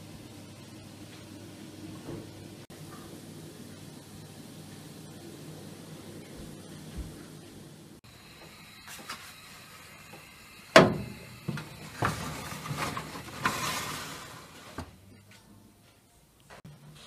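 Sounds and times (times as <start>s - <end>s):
oven door clanging: 10.8s - 14.9s
baking tray clattering and scraping: 10.8s - 15.4s.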